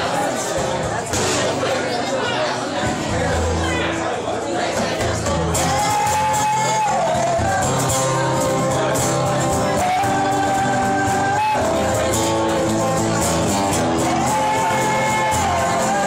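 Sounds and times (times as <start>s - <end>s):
strummed acoustic guitars: 0.0s - 16.0s
men singing through microphones: 4.7s - 16.0s.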